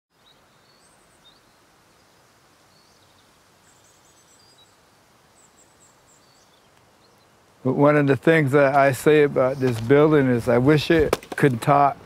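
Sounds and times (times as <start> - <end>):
bird chirps: 0.1 - 7.4
low hiss: 0.1 - 12.0.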